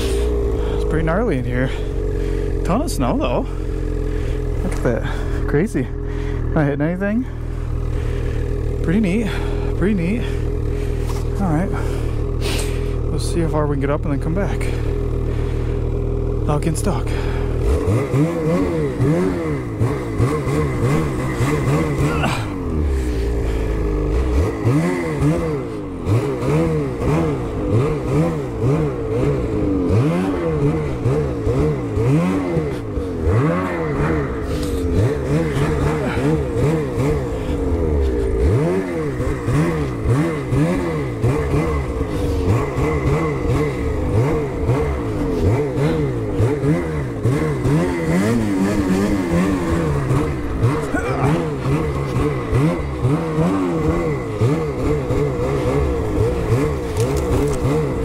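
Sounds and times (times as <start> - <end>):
snowmobile engine revving: 0.0 - 58.0.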